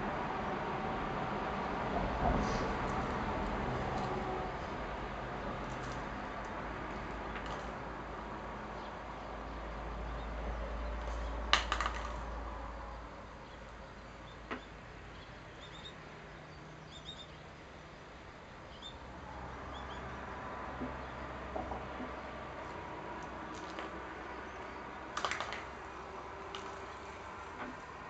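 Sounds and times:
small birds chirping: 0:08.7 - 0:20.2
sharp clicks: 0:25.2 - 0:25.8.

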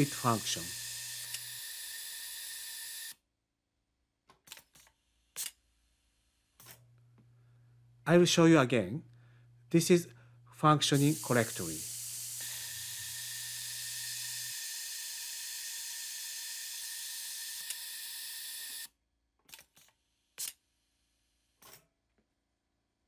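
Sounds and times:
compressed air hissing: 0:10.9 - 0:14.2.

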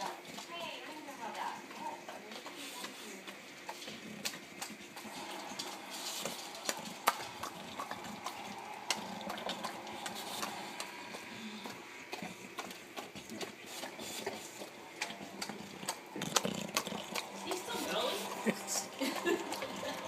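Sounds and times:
dog chewing and lip smacking: 0:00.0 - 0:20.0.

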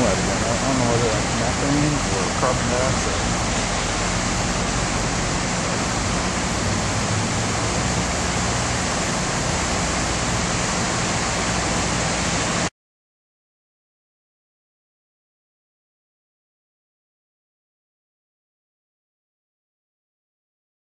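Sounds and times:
flooding river rushing: 0:00.0 - 0:12.7.

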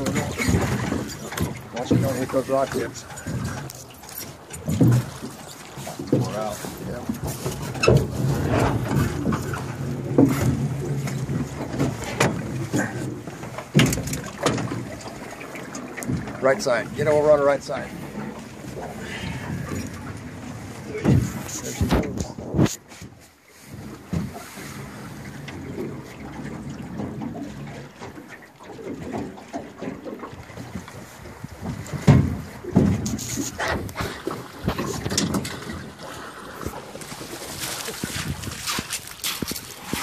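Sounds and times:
knocks against the hull: 0:00.0 - 0:17.1, 0:18.1 - 0:24.4, 0:25.0 - 0:36.0
boat engine hum: 0:00.0 - 0:40.0
water: 0:00.0 - 0:40.0
wind noise: 0:37.8 - 0:40.0.

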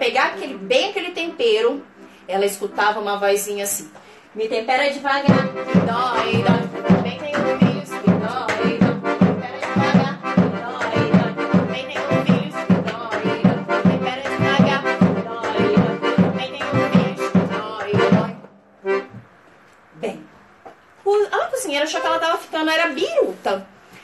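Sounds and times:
accordion playing lively tune: 0:00.3 - 0:03.8, 0:05.2 - 0:19.2, 0:21.7 - 0:22.7
hand-drum beat: 0:05.3 - 0:19.2.

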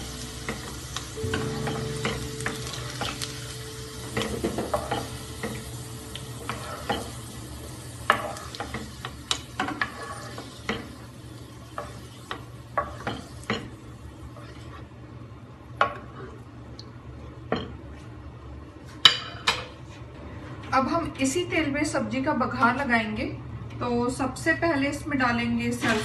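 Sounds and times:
hot oil sizzling: 0:00.0 - 0:14.7.

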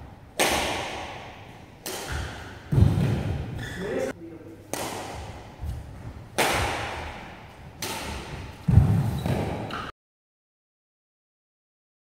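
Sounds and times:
racket hitting shuttlecock: 0:00.3 - 0:03.7, 0:04.7 - 0:09.9
footwork thudding on court: 0:00.4 - 0:03.6, 0:04.8 - 0:09.9.

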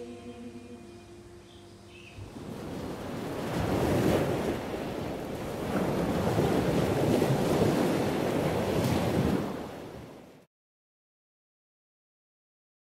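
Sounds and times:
sea waves washing onto beach: 0:02.3 - 0:10.4.

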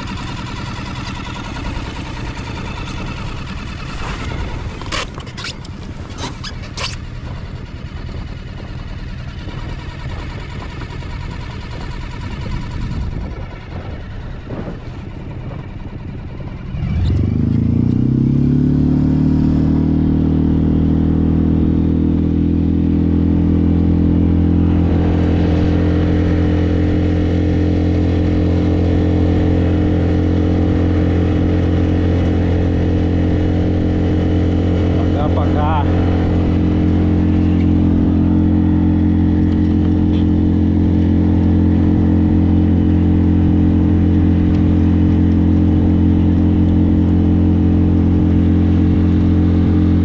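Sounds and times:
outboard motor running: 0:00.0 - 0:50.0
rough rushing noise: 0:23.1 - 0:46.4.

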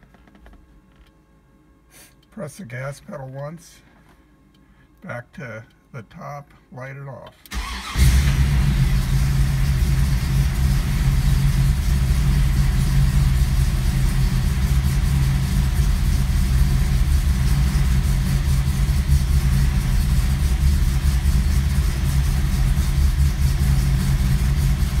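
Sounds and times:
car engine idling fast: 0:07.6 - 0:25.0.

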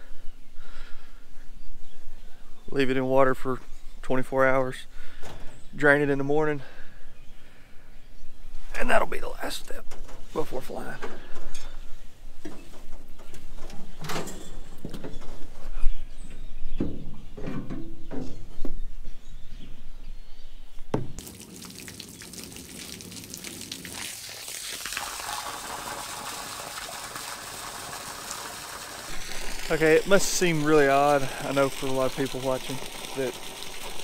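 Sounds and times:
hose water hissing: 0:21.2 - 0:34.0.

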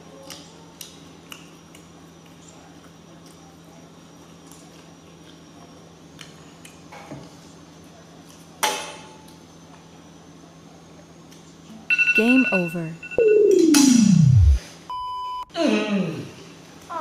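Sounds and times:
steady low hum: 0:09.2 - 0:15.6.

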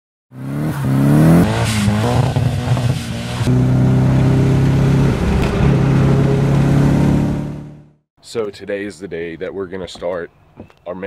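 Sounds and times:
car engine accelerating: 0:00.3 - 0:08.0.

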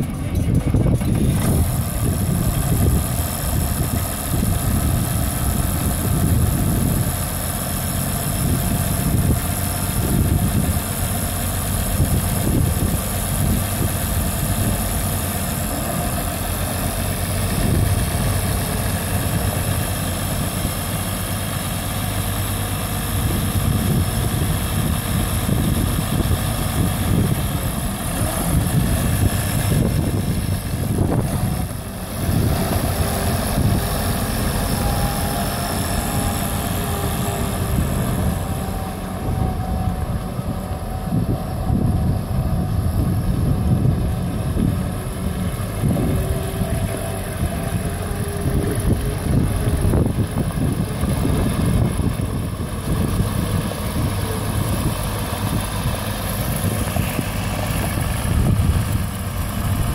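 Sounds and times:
tractor diesel engine idling: 0:00.0 - 0:59.9.

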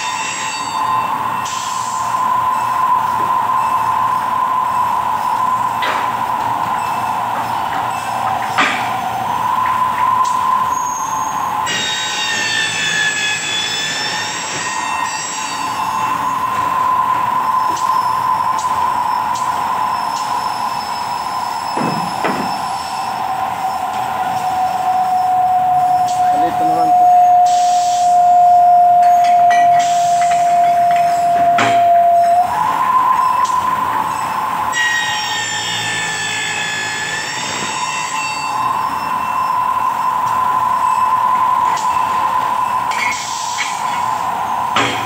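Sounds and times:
milling machine whining: 0:00.0 - 0:45.0
hiss: 0:01.4 - 0:28.8.

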